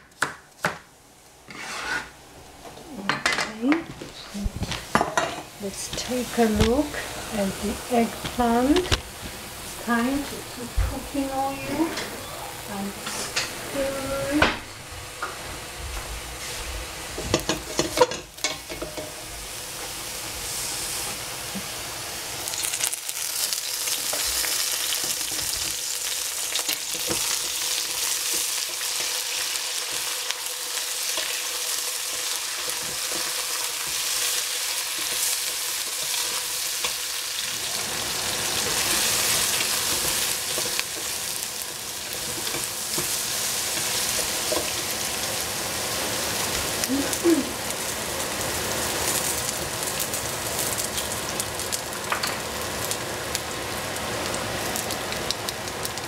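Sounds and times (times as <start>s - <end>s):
wooden spatula scraping pot: 1.5s - 2.2s
vegetables sizzling in oil: 2.9s - 56.0s.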